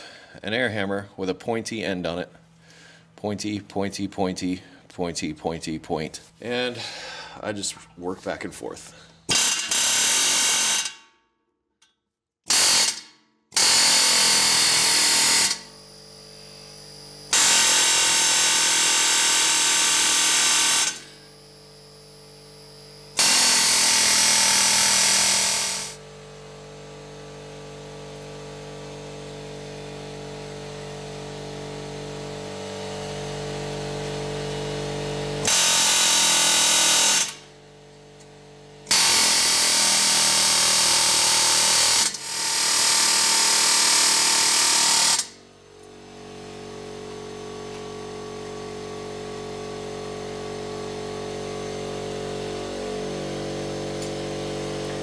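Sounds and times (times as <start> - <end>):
pneumatic air hammer on metal: 9.3 - 11.1, 12.5 - 21.4, 23.1 - 26.0, 35.4 - 37.5, 38.9 - 45.4
steady hum: 15.6 - 17.4.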